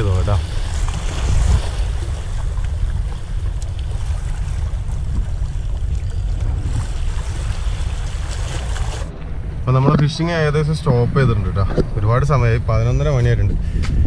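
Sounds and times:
waves splashing against rocks: 0:00.0 - 0:10.5
wind buffeting microphone: 0:00.0 - 0:14.0.

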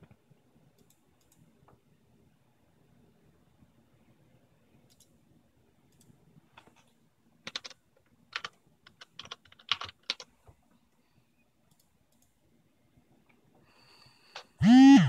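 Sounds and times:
typing on computer keyboard: 0:05.9 - 0:10.3.

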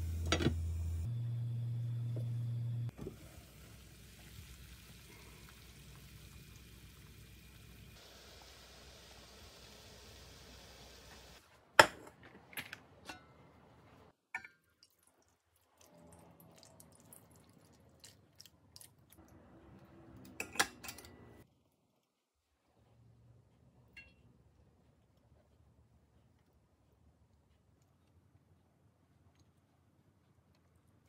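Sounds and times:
pot clanking: 0:20.3 - 0:21.3.

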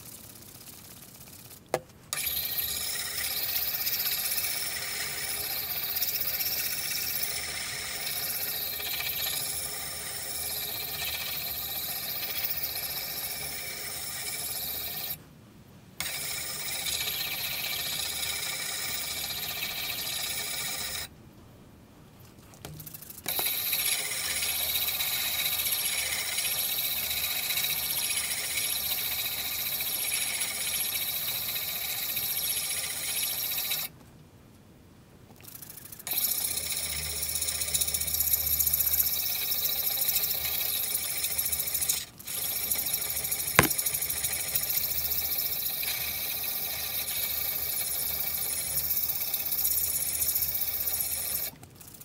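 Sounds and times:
sanding pad rasping on steel: 0:43.6 - 0:44.9.

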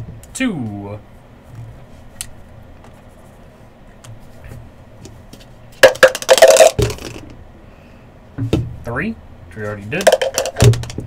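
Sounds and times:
clattering rattle of small objects: 0:05.8 - 0:07.3, 0:10.0 - 0:11.0.

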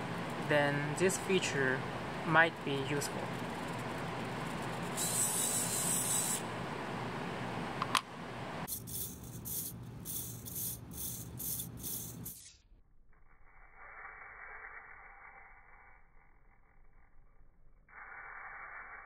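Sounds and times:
servo gear buzz: 0:03.4 - 0:06.4, 0:08.7 - 0:12.6
servo gearbox whirring: 0:03.4 - 0:06.4, 0:08.7 - 0:12.6.

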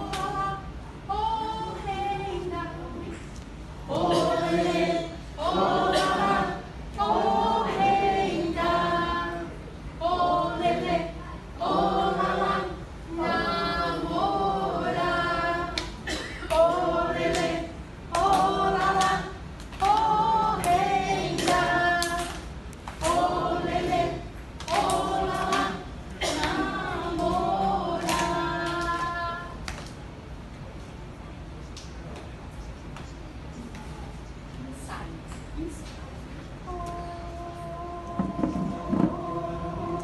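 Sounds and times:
group singing a cappella: 0:00.0 - 0:02.8, 0:03.8 - 0:29.6, 0:36.9 - 0:40.0.

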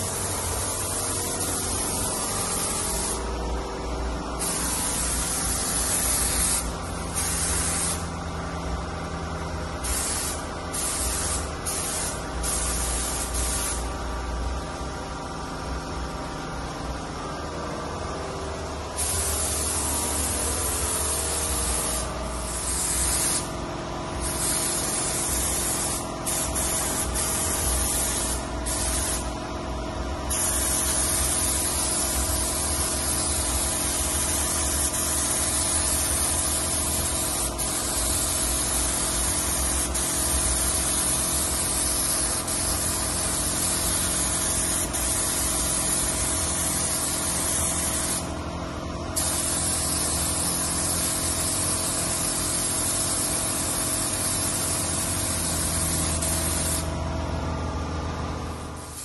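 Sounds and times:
spray gun hissing: 0:00.0 - 0:03.5, 0:04.2 - 0:08.4, 0:09.8 - 0:14.0, 0:18.8 - 0:48.4, 0:49.2 - 0:57.0, 0:58.6 - 0:59.0.

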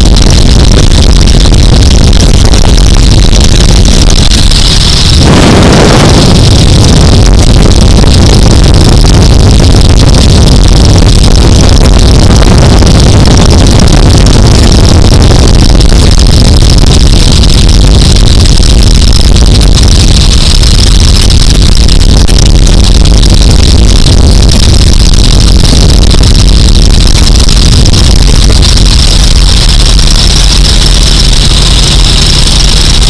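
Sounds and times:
wind rush over microphone: 0:00.0 - 0:33.0
biplane radial engine running: 0:03.5 - 0:09.6.

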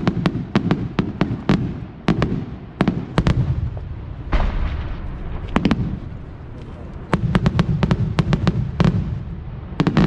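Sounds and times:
deep blast with rushing hiss: 0:00.0 - 0:10.0
firework bangs: 0:00.0 - 0:10.0.

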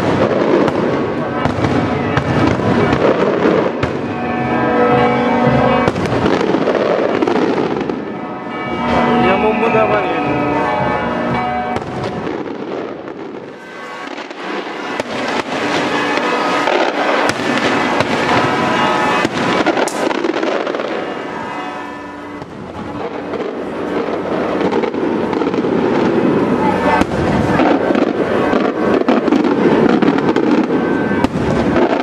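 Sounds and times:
fireworks bangs and crackles: 0:00.0 - 0:32.0.

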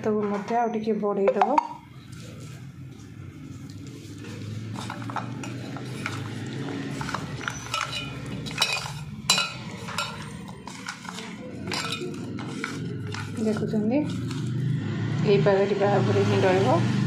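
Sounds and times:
clinks against metal bowl: 0:01.2 - 0:01.8, 0:04.8 - 0:14.4
food mixed by hand in steel bowl: 0:01.4 - 0:14.8.

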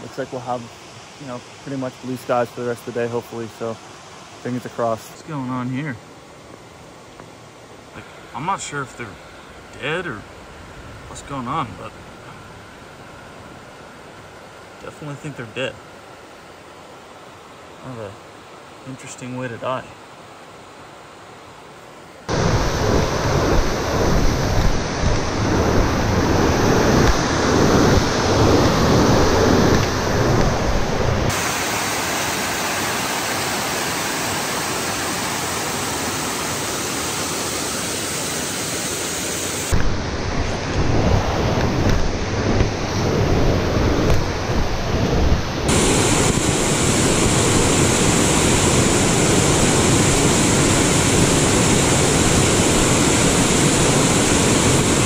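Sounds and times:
waterfall rushing: 0:22.3 - 0:55.0.

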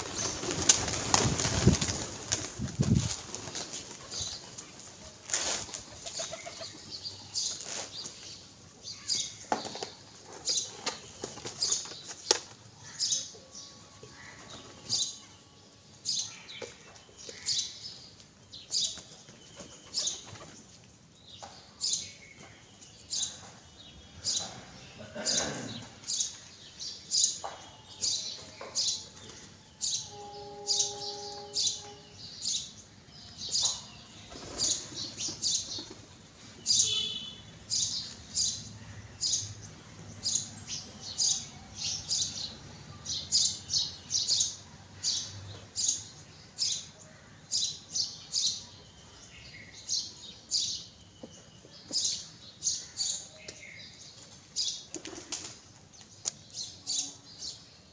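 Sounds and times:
wings fluttering: 0:00.0 - 0:04.2
pigeons chirping: 0:00.0 - 0:13.3, 0:16.1 - 0:20.8, 0:27.0 - 0:42.3.

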